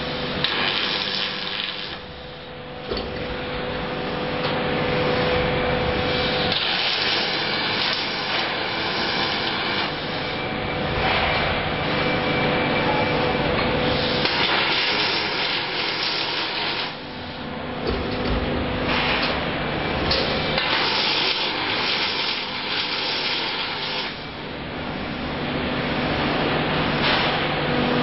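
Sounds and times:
welding arcs crackling and hissing: 0:00.0 - 0:04.3, 0:04.9 - 0:11.4, 0:13.9 - 0:24.4.

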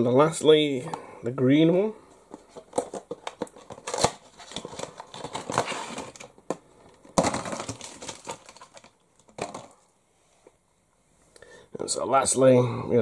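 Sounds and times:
toy packaging crinkling and clicking: 0:02.3 - 0:09.8.

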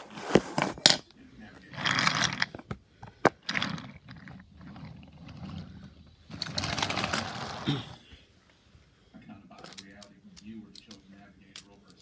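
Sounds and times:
toy train rolling on wooden track: 0:01.6 - 0:07.7.

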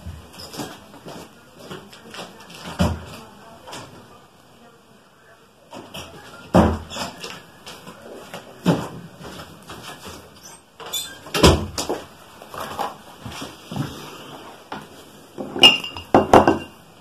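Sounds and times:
knocks and bumps in a room: 0:05.8 - 0:10.3, 0:11.2 - 0:14.0.

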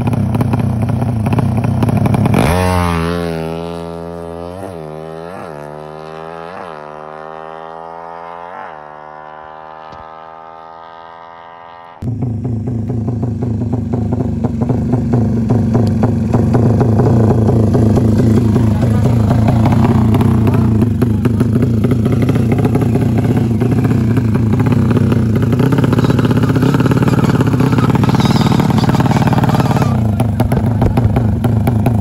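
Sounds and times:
motorcycle accelerating through gears: 0:00.0 - 0:32.0
rough engine close by: 0:00.0 - 0:32.0.

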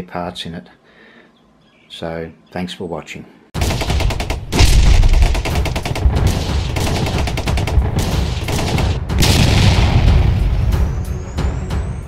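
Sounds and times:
rapid-fire crackling: 0:03.6 - 0:10.4.

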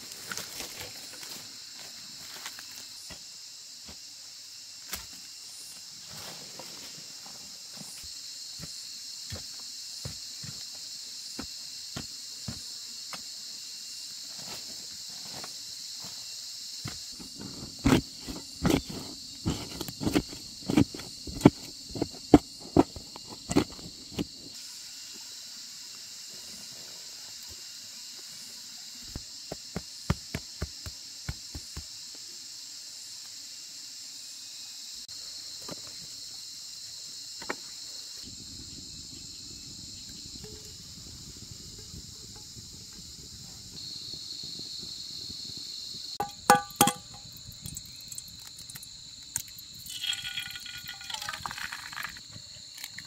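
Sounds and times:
insects chirring: 0:00.0 - 0:53.0
sharp knocks: 0:46.2 - 0:47.2.

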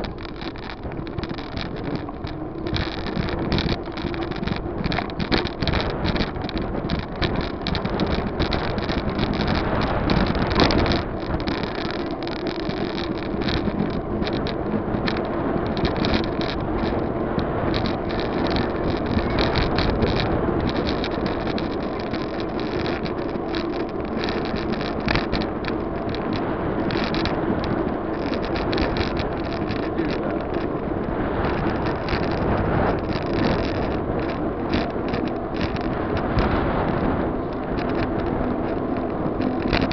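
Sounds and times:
small knocks: 0:00.0 - 0:30.8
wind buffeting microphone: 0:00.0 - 0:39.9.

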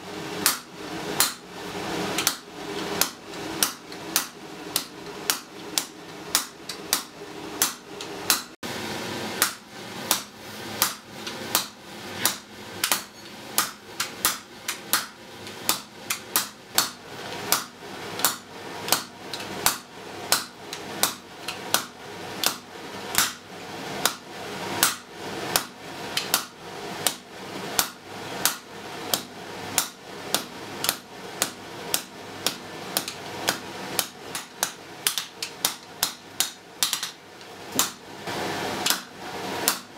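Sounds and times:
hammer striking iron on anvil: 0:00.4 - 0:01.4, 0:02.2 - 0:08.6, 0:09.4 - 0:23.4.

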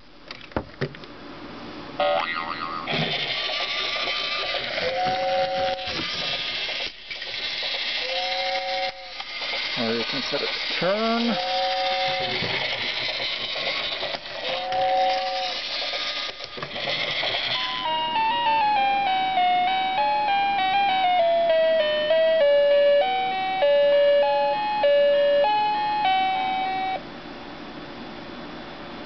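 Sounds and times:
toy steam hiss sound effect: 0:02.0 - 0:18.1.

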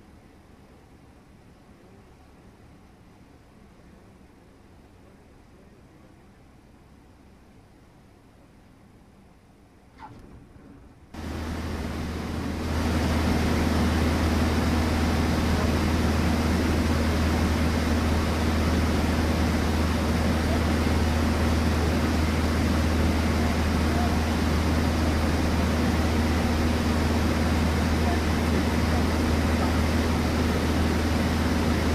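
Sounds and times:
rush of air over cabin: 0:00.0 - 0:31.9
airplane engine and propeller droning: 0:10.0 - 0:31.9.

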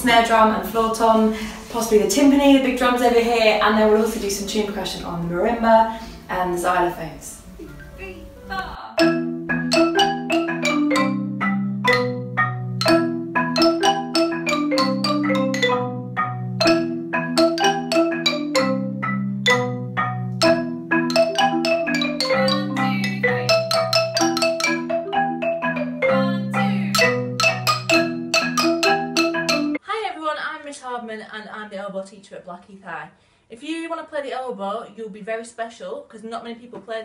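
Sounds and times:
marimba ensemble playing: 0:07.4 - 0:29.8.

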